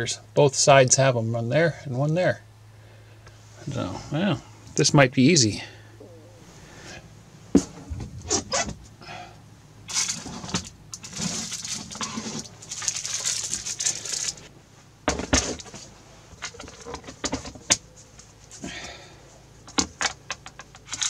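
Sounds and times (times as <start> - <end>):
plastic boxes rustling and scraping: 9.9 - 14.5, 15.1 - 19.0.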